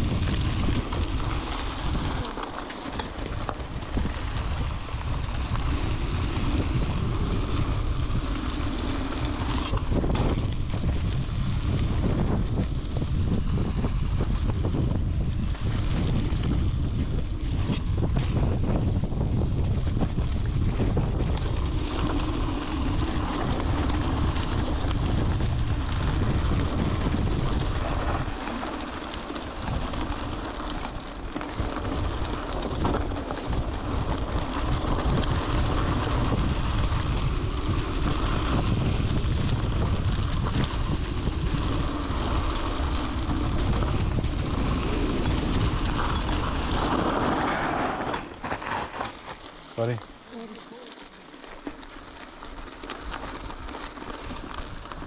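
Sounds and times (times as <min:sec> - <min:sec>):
wind buffeting microphone: 0:00.0 - 0:50.0
bike tyres rolling over trail: 0:00.0 - 0:55.0.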